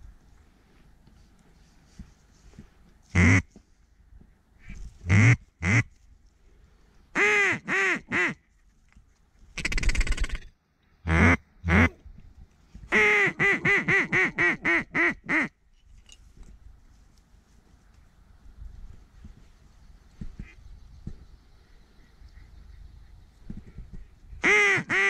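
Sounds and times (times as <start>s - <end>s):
duck quacking: 3.1s - 3.4s, 11.1s - 12.0s, 12.9s - 15.5s, 24.4s - 25.0s
duck buzzy rattling chatter: 9.6s - 10.5s.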